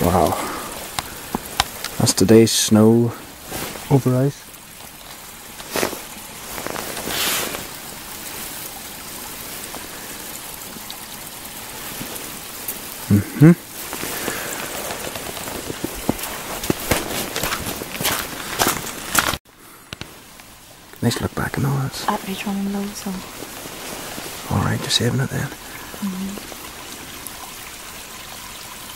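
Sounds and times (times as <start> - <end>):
steady hiss: 0.0 - 28.9
footsteps crunching on snow: 5.6 - 7.9, 13.7 - 19.4
brief vocal sounds: 13.1 - 13.6.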